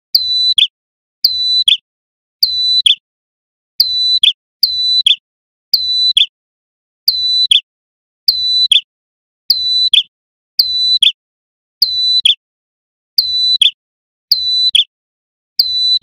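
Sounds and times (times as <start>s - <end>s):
songbird calling: 0.2s - 0.7s, 1.3s - 1.8s, 3.8s - 5.2s, 5.8s - 6.3s, 7.2s - 7.7s, 8.4s - 8.9s, 9.5s - 10.1s, 11.9s - 12.4s, 13.3s - 14.9s.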